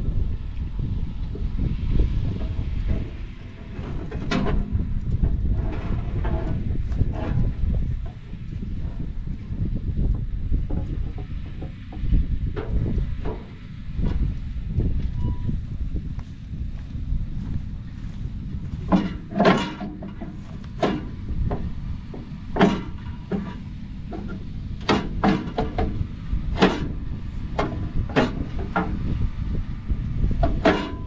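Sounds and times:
low wind rumble: 0.0 - 31.0
metallic clanks and knocks: 2.1 - 9.2, 10.5 - 14.3, 18.6 - 29.2, 30.4 - 31.0.

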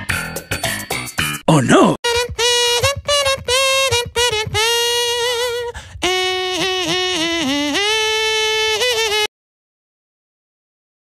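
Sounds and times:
high voice singing: 1.5 - 9.3.

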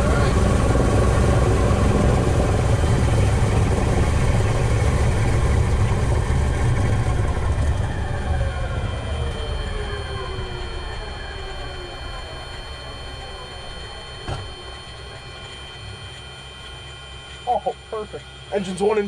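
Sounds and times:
radial aircraft engines running: 0.0 - 19.0.

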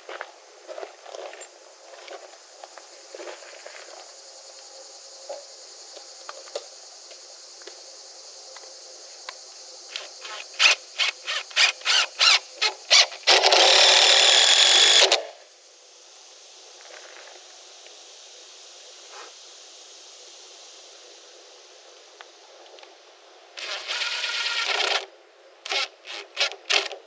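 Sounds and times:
cordless driver driving screw: 23.6 - 25.0.

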